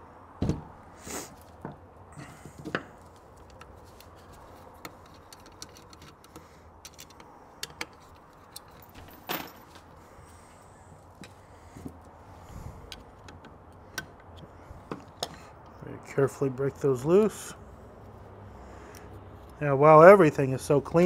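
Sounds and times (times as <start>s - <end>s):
metal parts clicking and tapping: 2.6s - 9.9s.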